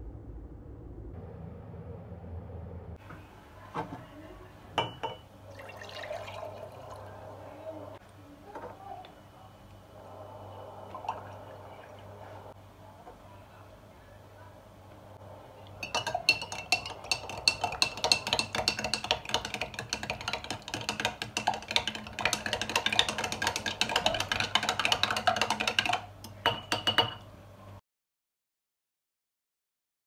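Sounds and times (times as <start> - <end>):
metal spoon clinking against glass: 15.8 - 19.4, 26.4 - 27.2.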